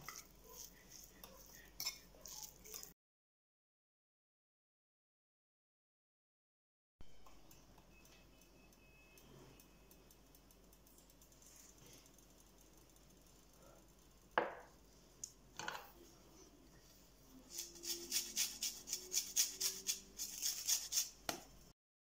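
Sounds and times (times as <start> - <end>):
lime rasping on metal grater: 0.0 - 2.9, 17.4 - 21.2.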